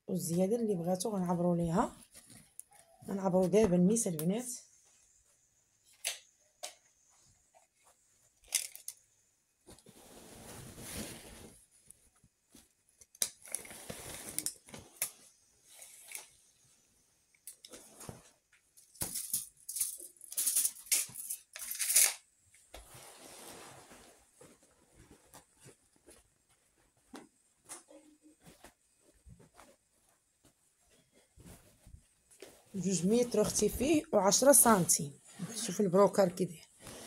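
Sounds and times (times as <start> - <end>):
stiff fabric rustling: 9.6 - 12.8, 22.6 - 37.0.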